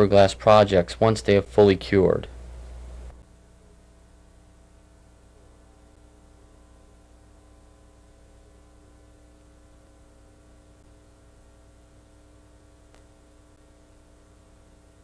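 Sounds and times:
electrical hum: 0:00.0 - 0:15.0
faint click: 0:12.9 - 0:13.2.

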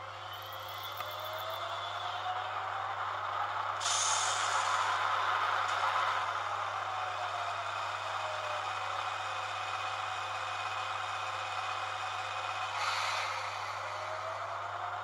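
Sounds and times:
locomotive hum and whir: 0:00.0 - 0:15.0
short hiss: 0:03.8 - 0:04.9.

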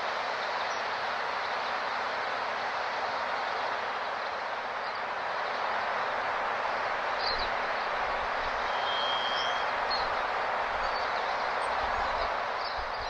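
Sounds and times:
steady rushing background noise: 0:00.0 - 0:13.0
high bird chirps: 0:08.6 - 0:09.7
brief high whistle: 0:08.7 - 0:09.7.

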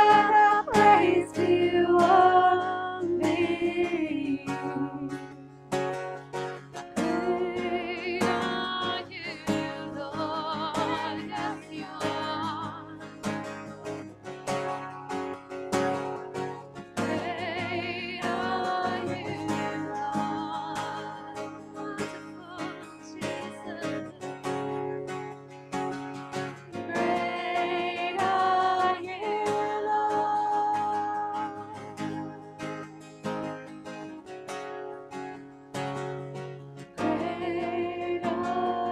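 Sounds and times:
women singing: 0:00.0 - 0:05.3, 0:07.0 - 0:13.1, 0:17.0 - 0:24.8, 0:26.8 - 0:32.6, 0:37.0 - 0:38.9
acoustic guitar strumming: 0:00.0 - 0:38.9.

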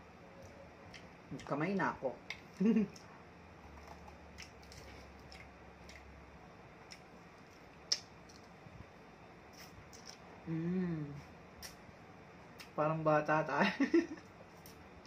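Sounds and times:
wet eating sounds: 0:03.7 - 0:06.1
person humming: 0:10.4 - 0:11.3.

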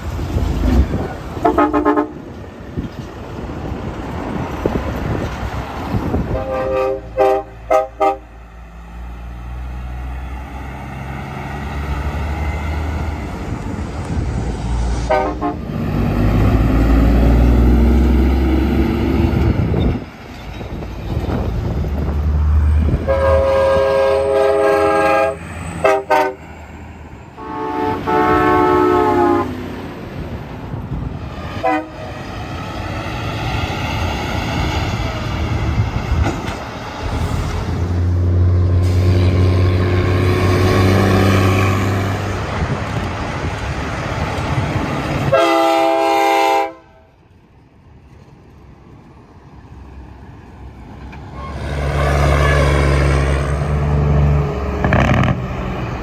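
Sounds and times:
trucks passing by: 0:00.0 - 0:56.0
truck train horns sounding: 0:00.6 - 0:02.4, 0:06.2 - 0:08.8, 0:14.9 - 0:19.1, 0:22.6 - 0:29.8, 0:31.4 - 0:32.3, 0:45.2 - 0:47.2, 0:51.2 - 0:55.5.

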